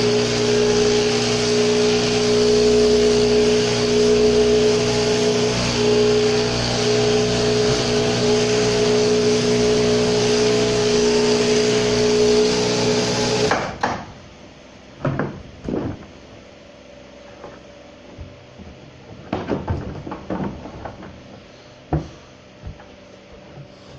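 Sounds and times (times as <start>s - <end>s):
electric shears buzzing: 0.0s - 13.8s
knocks and thuds on wooden floor: 15.0s - 16.2s, 18.2s - 22.9s.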